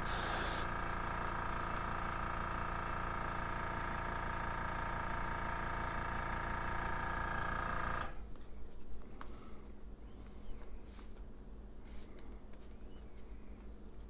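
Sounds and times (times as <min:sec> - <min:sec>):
air compressor motor hum: 0:00.0 - 0:08.2.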